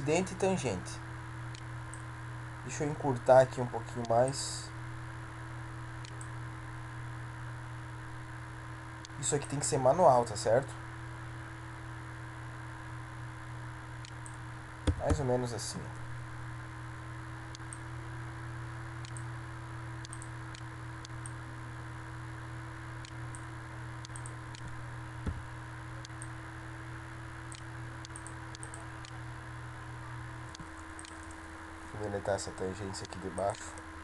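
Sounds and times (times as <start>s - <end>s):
electrical hum and hiss: 0.0s - 34.0s
computer mouse clicks: 6.0s - 6.3s, 20.0s - 21.4s, 24.0s - 24.7s, 27.5s - 29.2s, 30.5s - 31.4s.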